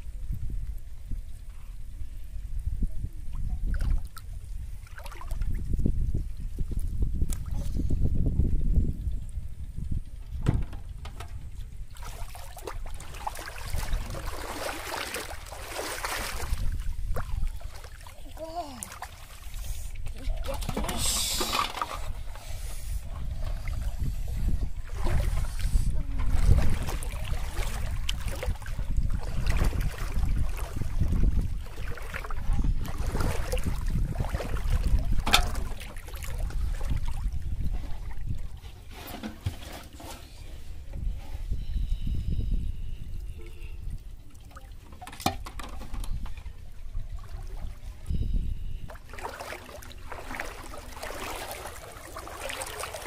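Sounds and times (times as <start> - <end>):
wind rumbling on microphone: 0.0 - 53.0
water sloshing: 3.3 - 5.8, 10.6 - 41.1, 43.2 - 53.0
plastic bottle floats hissing rush: 20.9 - 23.1.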